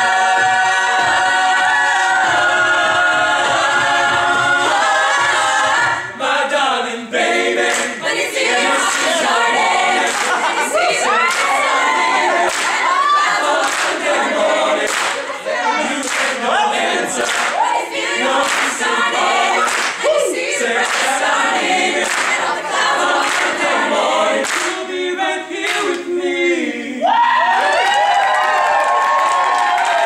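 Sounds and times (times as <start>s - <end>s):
percussive beat: 0.0s - 6.2s
a cappella group singing: 0.0s - 27.2s.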